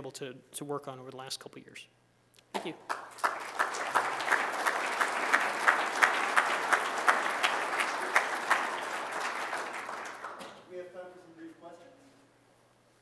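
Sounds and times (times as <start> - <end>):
sharp nearby claps: 2.5 - 10.7
audience applauding: 2.9 - 10.6.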